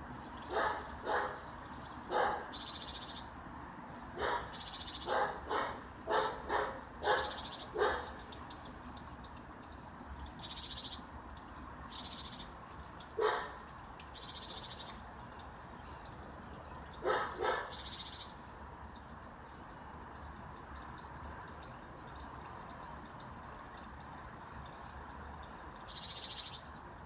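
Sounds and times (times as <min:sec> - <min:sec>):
dog barking: 0:00.5 - 0:01.4, 0:02.1 - 0:02.5, 0:04.2 - 0:08.1, 0:13.2 - 0:13.6, 0:17.0 - 0:17.7.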